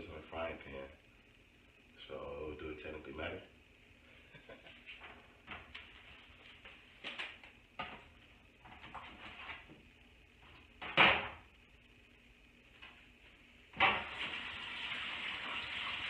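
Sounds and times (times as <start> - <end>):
items knocking and clinking in sink: 13.8 - 14.4.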